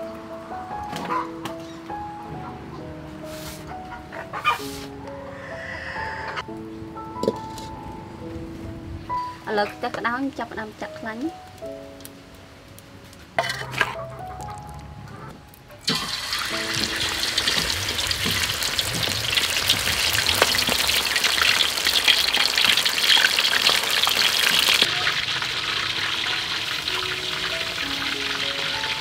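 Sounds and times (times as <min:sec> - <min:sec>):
squid sizzling in hot oil: 0:15.8 - 0:29.0.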